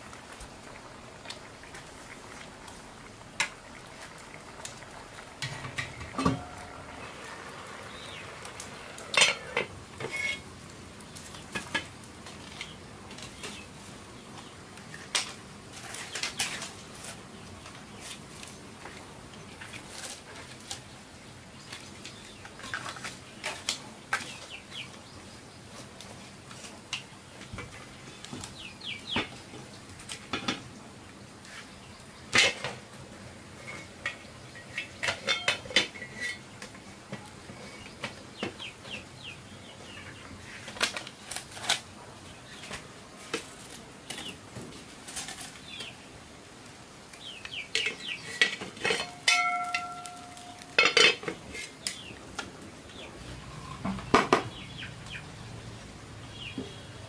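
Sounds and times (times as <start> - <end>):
metal pots and utensils clinking: 3.4 - 10.5, 32.3 - 32.8, 33.6 - 37.8, 47.7 - 52.1
birds chirping: 5.6 - 9.6, 27.2 - 29.4, 37.2 - 40.7, 47.1 - 48.6, 49.3 - 52.2, 52.8 - 57.0.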